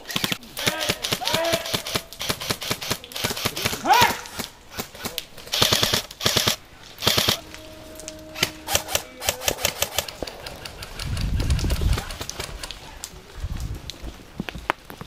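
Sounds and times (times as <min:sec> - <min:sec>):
airsoft rifle automatic bursts: 0:00.0 - 0:07.4, 0:08.8 - 0:11.1
low rumble: 0:07.0 - 0:12.4.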